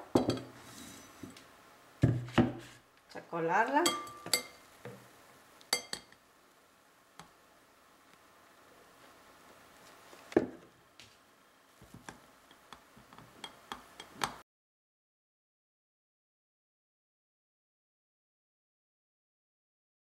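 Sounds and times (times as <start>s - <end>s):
kitchenware clinking on metal strainer: 3.8s - 4.6s.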